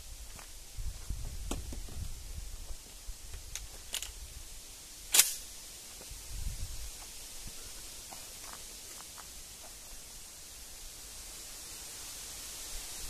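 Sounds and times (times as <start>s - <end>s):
shotgun shot: 5.1s - 5.4s.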